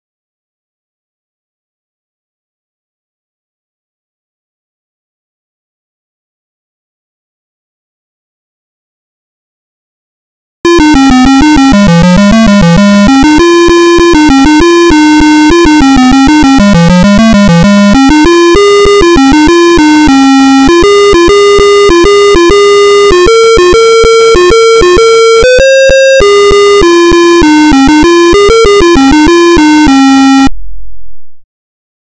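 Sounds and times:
buzzy one-bit computer tune: 10.7s - 30.5s.

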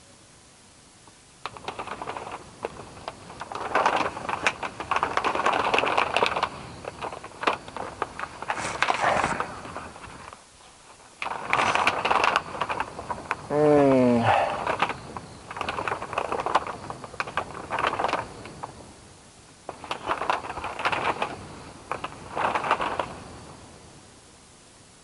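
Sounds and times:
twigs crackling and snapping: 1.4s - 13.5s, 14.5s - 18.8s, 19.7s - 23.2s.

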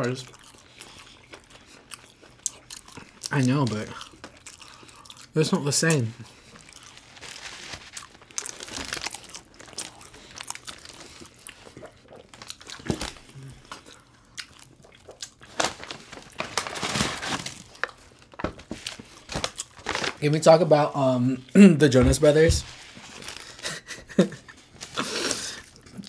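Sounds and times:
biting and chewing sandwiches: 0.0s - 5.4s, 6.0s - 20.2s
paper wrappers crinkling: 6.6s - 11.3s, 15.4s - 20.2s, 22.2s - 24.2s.

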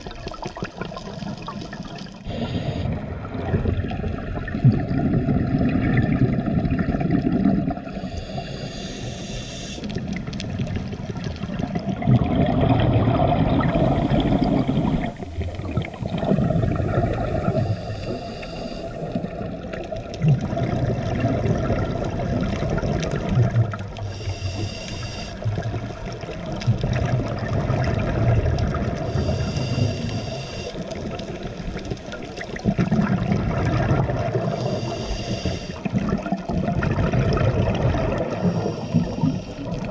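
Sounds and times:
gurgling exhaled bubbles: 0.0s - 39.9s
regulator inhale hiss: 2.3s - 3.0s, 7.9s - 10.0s, 13.5s - 19.4s, 24.0s - 25.4s, 29.1s - 31.2s, 34.5s - 35.9s, 38.3s - 39.9s.

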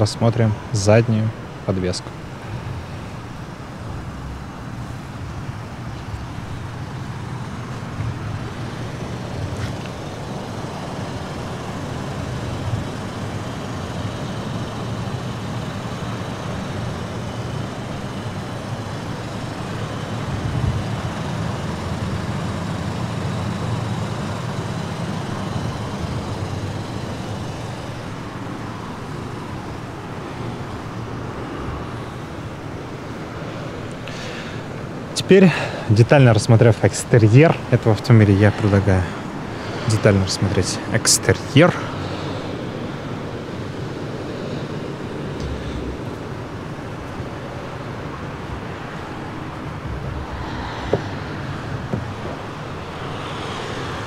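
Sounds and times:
engine hum: 0.0s - 54.0s
road traffic: 0.0s - 54.0s.

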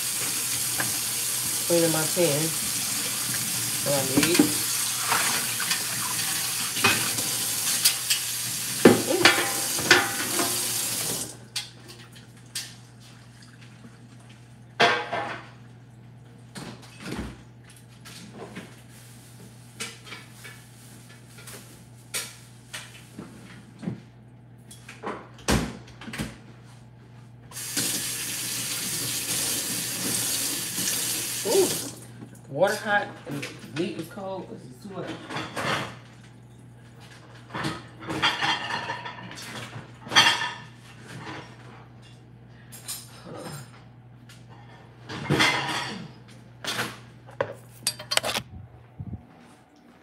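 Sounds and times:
faucet running into metal sink: 0.0s - 11.4s, 27.6s - 32.0s.

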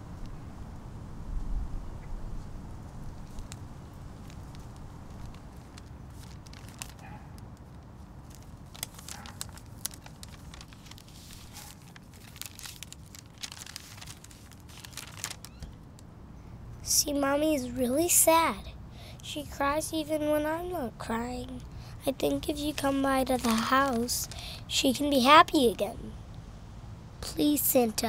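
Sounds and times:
low background rumble: 0.0s - 28.0s
paper envelope crinkling and tearing: 3.2s - 15.9s, 22.1s - 24.6s.

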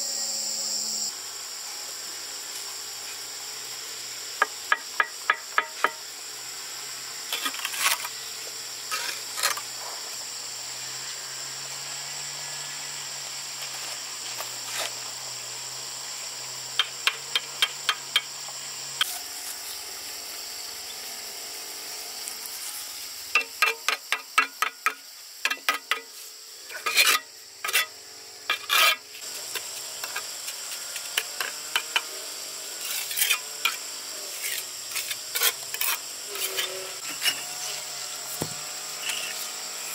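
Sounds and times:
high drone of insects: 0.0s - 39.9s
hand tools tapping and scraping: 4.4s - 6.0s, 23.3s - 32.1s, 34.4s - 39.5s.

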